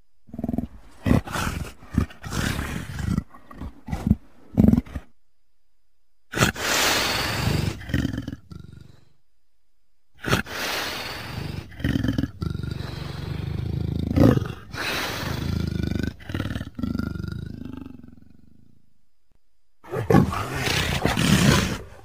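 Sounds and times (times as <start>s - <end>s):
leopard roaring calls: 0.3s - 5.1s, 19.8s - 22.0s.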